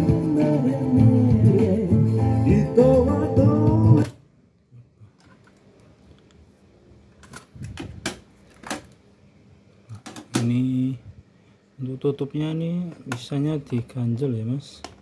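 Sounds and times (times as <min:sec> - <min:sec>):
guitar and singing music: 0:00.0 - 0:04.2.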